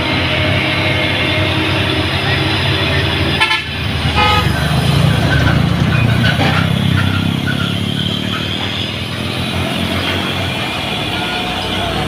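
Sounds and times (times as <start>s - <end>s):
car passing: 0.0s - 12.0s
truck diesel engine climbing: 0.0s - 12.0s
short horn toot: 3.4s - 4.6s.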